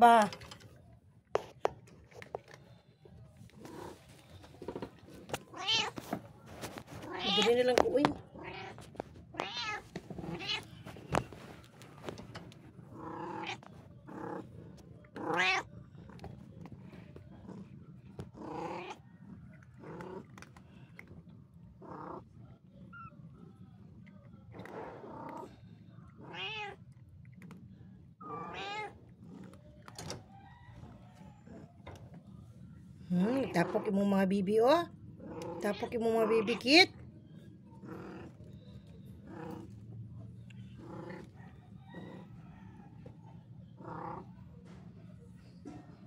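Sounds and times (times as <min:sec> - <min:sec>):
cat meowing: 0:05.5 - 0:06.0, 0:07.0 - 0:07.6, 0:08.2 - 0:10.8, 0:13.0 - 0:14.4, 0:15.2 - 0:15.7, 0:26.2 - 0:26.8, 0:28.2 - 0:29.0.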